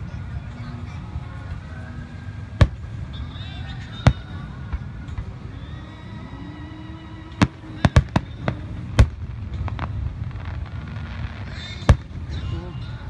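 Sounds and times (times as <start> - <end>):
faint firework pops: 2.6 - 2.9
firework shells bursting: 2.6 - 3.0, 7.4 - 12.4.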